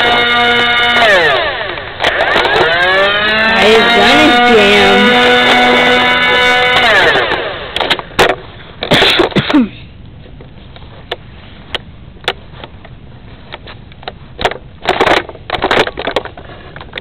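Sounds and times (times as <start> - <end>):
camera handling knocks and rustles: 13.5 - 17.0
loud clatters: 14.4 - 17.0.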